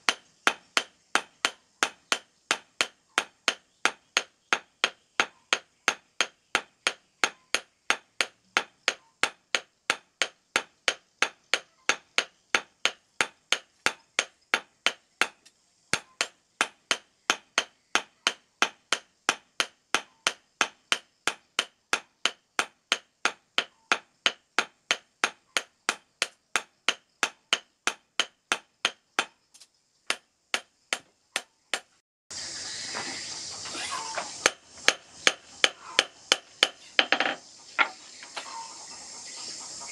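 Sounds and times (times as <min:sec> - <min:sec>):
steady hiss: 0:00.0 - 0:11.4, 0:32.3 - 0:39.9.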